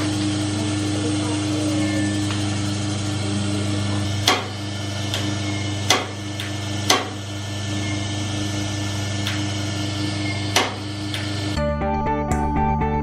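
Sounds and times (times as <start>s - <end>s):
coffee roaster motor hum: 0.0s - 11.6s
sharp clicks: 9.2s - 9.5s.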